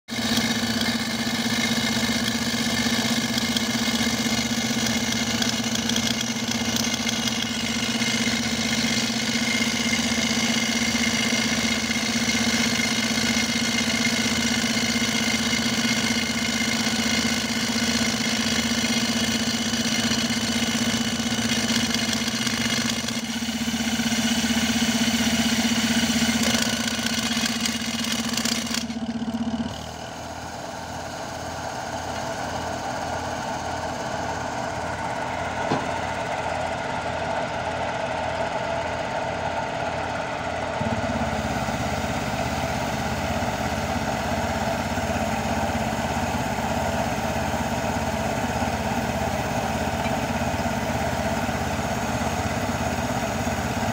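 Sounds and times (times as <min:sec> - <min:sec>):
pneumatic rock drill hammering: 0:00.1 - 0:36.3, 0:40.8 - 0:53.9
compressor hum: 0:21.0 - 0:53.9.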